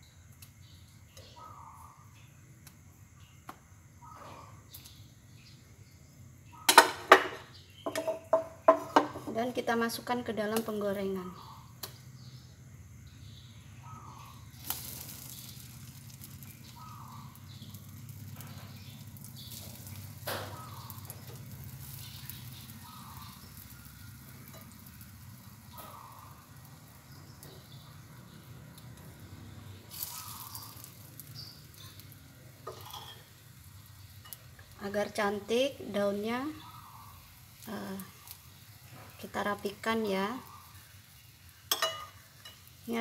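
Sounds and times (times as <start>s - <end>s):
bread frying in butter sizzling: 4.6s - 43.0s
sharp knocks in pan: 6.7s - 9.4s.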